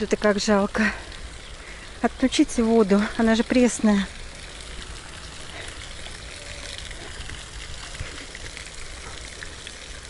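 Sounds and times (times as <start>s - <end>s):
running water splashing: 0.0s - 10.0s.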